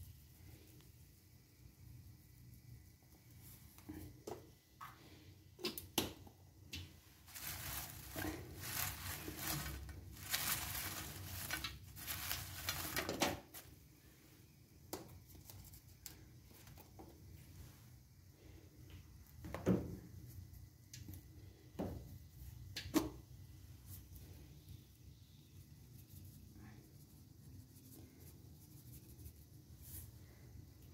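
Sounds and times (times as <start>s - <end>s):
fries tossed in pan: 7.0s - 13.7s.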